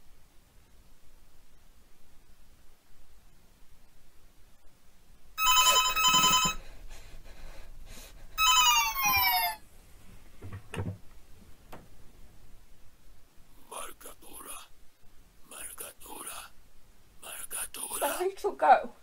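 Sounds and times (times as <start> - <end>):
phone warbling ring: 5.4 - 6.6, 8.4 - 9.6.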